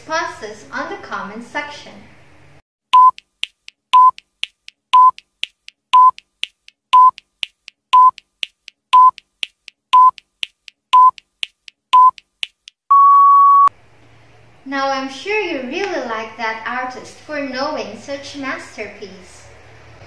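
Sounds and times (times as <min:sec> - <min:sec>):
short sharp beeps: 0:02.9 - 0:03.2, 0:03.9 - 0:04.2, 0:05.0 - 0:05.2, 0:06.0 - 0:06.2, 0:07.0 - 0:07.2, 0:08.0 - 0:08.2, 0:09.0 - 0:09.2, 0:10.0 - 0:10.2, 0:11.0 - 0:11.2, 0:12.0 - 0:12.2, 0:12.9 - 0:13.7.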